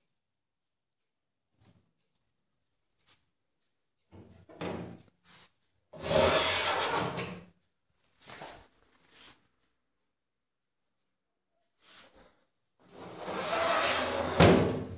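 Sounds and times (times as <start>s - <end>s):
metal drawer sliding on runners: 12.9s - 14.6s.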